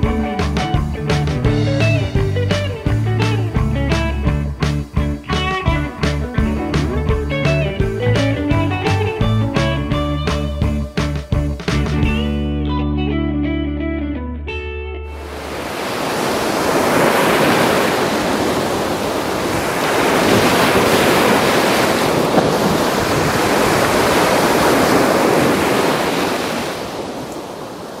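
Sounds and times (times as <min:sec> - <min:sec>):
surf breaking on sandy beach: 0:15.1 - 0:28.0.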